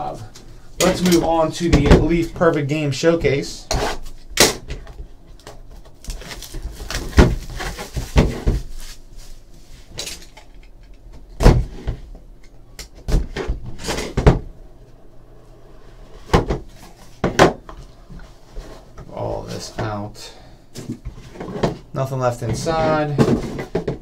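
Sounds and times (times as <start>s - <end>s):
plastic wrap crinkling: 5.7s - 9.8s.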